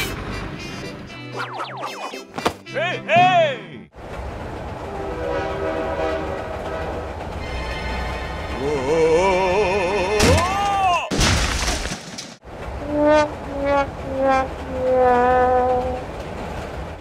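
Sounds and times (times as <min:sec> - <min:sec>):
train rumble: 0:00.0 - 0:01.1, 0:04.0 - 0:10.6, 0:12.4 - 0:17.0
warbling train horn: 0:04.8 - 0:09.0, 0:12.8 - 0:16.1.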